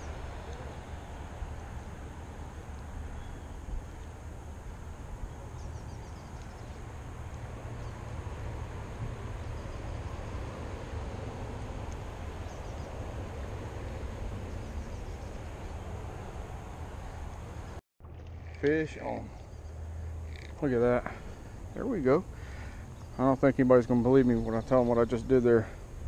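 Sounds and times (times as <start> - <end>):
faint bird chirps: 3.2 - 3.6, 5.6 - 6.8.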